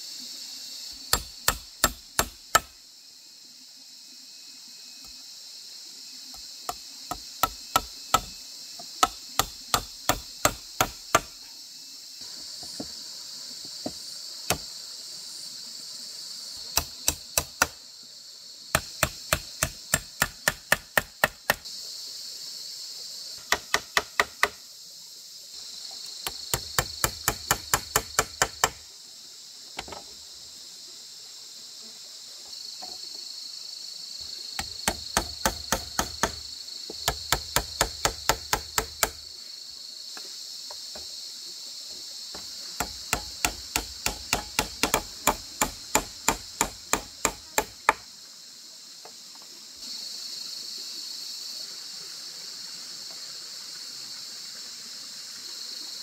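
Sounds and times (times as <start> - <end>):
high-pitched insect drone: 0.0 - 56.0
hand tool strikes: 1.1 - 2.7, 18.8 - 21.6, 42.8 - 48.0.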